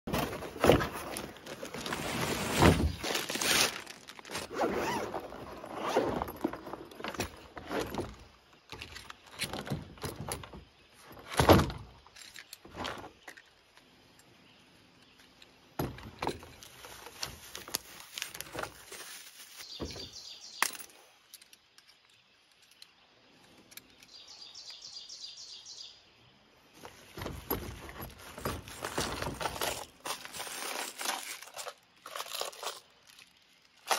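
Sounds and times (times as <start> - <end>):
plastic wrapping crinkling: 0.1 - 6.0, 16.7 - 19.7, 28.2 - 33.9
cardboard box being opened: 0.1 - 8.0
scraping and rustling: 0.1 - 10.3, 15.8 - 20.4, 26.8 - 33.9.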